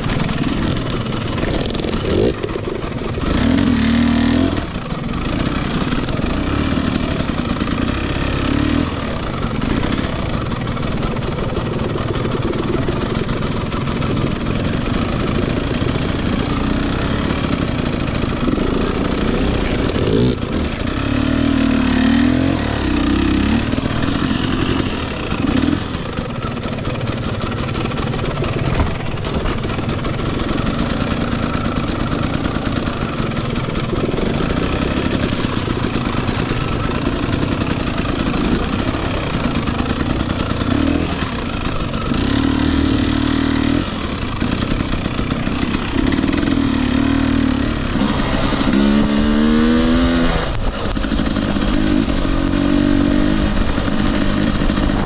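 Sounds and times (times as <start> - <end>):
bike clattering on rough ground: 0.0 - 8.2, 17.4 - 46.7
dirt bike engine revving: 0.0 - 55.0.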